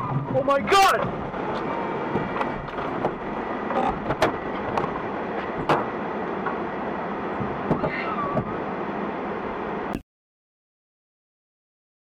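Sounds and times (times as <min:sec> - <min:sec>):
car road and engine noise: 0:00.0 - 0:10.0.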